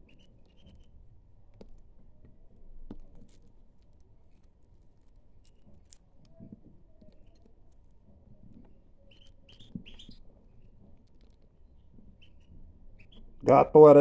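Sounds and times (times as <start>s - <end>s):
fingers crumbling food in bowl: 2.6s - 12.4s
finches chirping: 8.4s - 10.8s, 11.5s - 13.4s.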